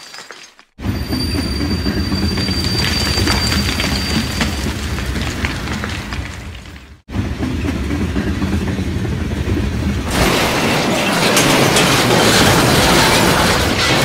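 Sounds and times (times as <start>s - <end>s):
low rumbling train: 0.8s - 14.0s
crash of smashing and breaking: 10.1s - 14.0s.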